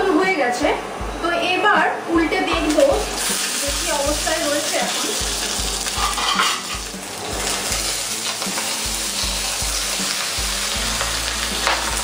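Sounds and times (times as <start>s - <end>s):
oil sizzling: 2.4s - 12.0s
scrape in pan: 5.8s - 9.5s.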